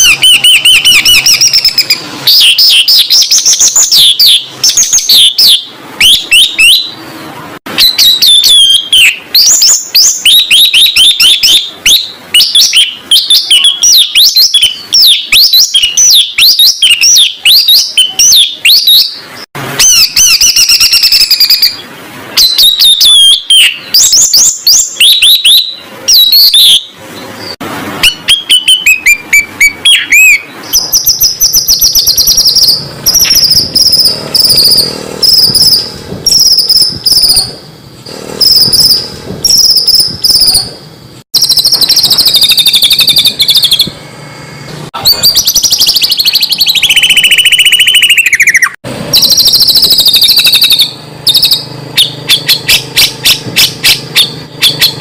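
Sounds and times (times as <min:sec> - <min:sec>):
songbird singing: 0:00.0 - 0:07.1, 0:07.8 - 0:37.5
rapid high trill: 0:00.0 - 0:55.0.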